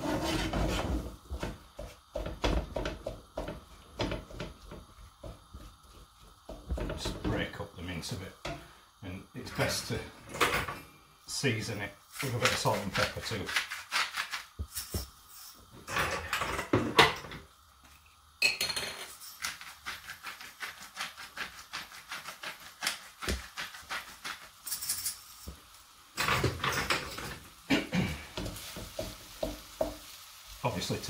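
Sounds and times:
salt and pepper grinders grinding: 12.1s - 15.7s, 19.0s - 25.8s
mince clattering in a pan: 26.2s - 30.2s.

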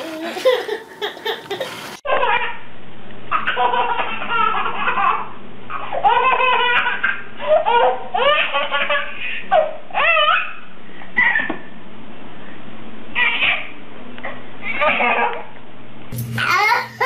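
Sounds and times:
baby laughing: 0.0s - 2.6s, 3.3s - 11.6s, 13.2s - 13.7s, 16.4s - 17.0s.

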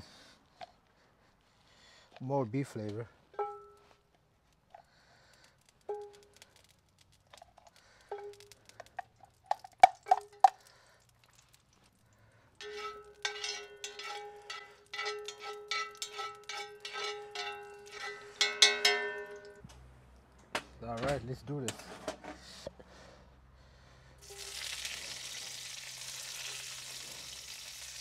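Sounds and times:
metal spoon knocking in skillet: 12.6s - 19.6s.

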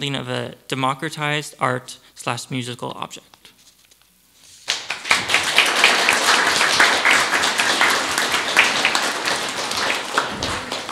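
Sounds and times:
audience applause: 4.7s - 10.9s.

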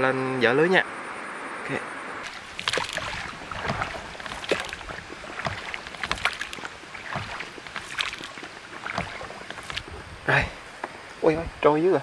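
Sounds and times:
paddle splashes in water: 2.2s - 10.3s
knocks against boat: 2.5s - 10.0s.

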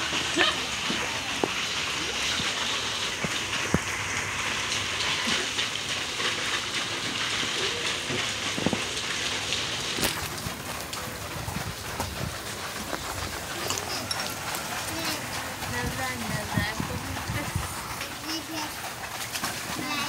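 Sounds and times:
short water splashes: 0.0s - 20.0s.

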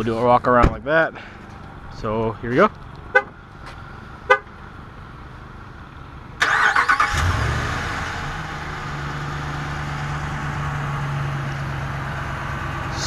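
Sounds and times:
truck engine revving and idling: 1.5s - 13.0s.

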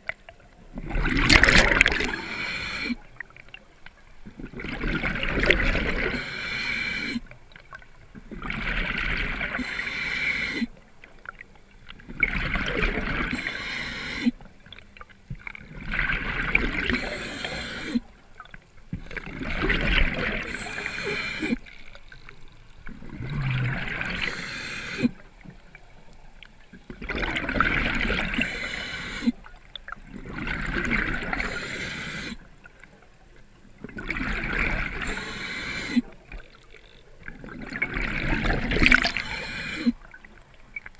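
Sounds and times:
bubbling exhalations: 0.8s - 3.0s, 23.0s - 25.2s, 37.4s - 40.1s
diver breathing through regulator: 1.8s - 3.1s, 5.9s - 7.3s, 9.4s - 10.8s, 13.2s - 14.4s, 16.8s - 18.1s, 20.1s - 21.7s, 23.2s - 25.2s, 28.1s - 29.4s, 31.2s - 32.5s, 34.7s - 36.2s, 38.3s - 40.1s.

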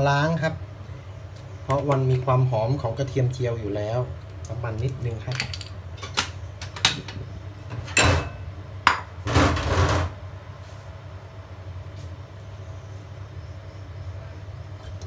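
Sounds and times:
low steady hum: 0.0s - 15.0s
wok and utensils clattering: 5.3s - 10.1s.

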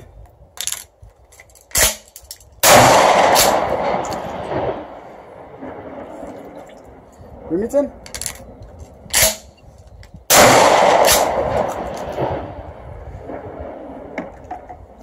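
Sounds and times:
shotgun shot echoing: 2.6s - 5.0s, 10.3s - 12.6s.

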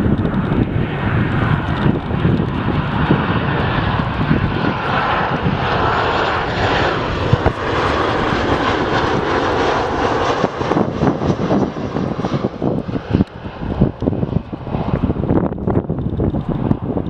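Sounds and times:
jet airliner roar overhead: 0.0s - 17.0s.

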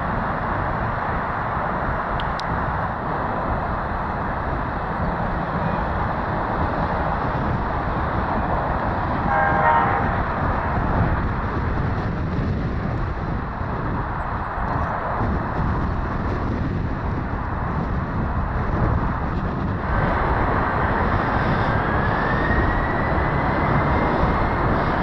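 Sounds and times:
jet engine taxiing: 0.0s - 25.0s
short horn-like tone: 9.3s - 10.2s.

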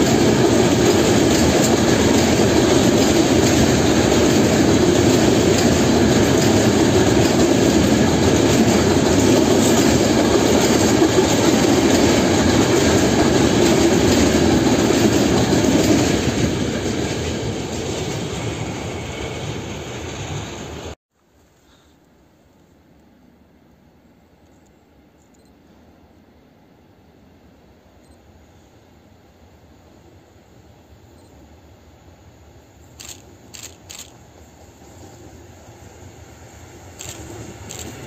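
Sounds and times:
freight train wheels on rails: 0.0s - 21.0s, 29.8s - 38.0s.

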